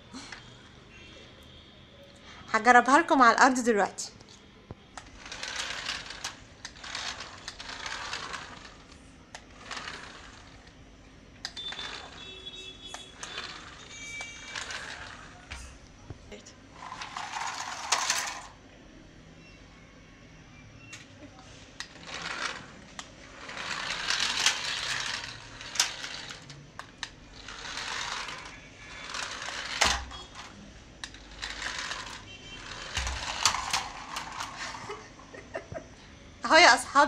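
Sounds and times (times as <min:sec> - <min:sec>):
toy car motor whirring: 0:05.0 - 0:10.8, 0:11.4 - 0:15.7, 0:16.8 - 0:18.6, 0:21.8 - 0:35.0.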